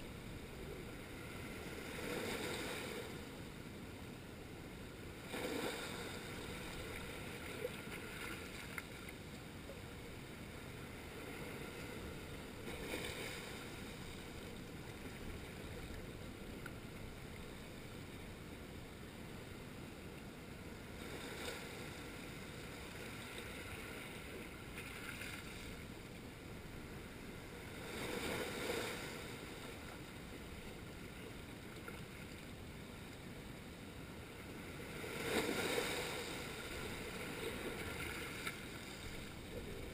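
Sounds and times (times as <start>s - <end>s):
waves washing on rocky shore: 34.6s - 39.9s.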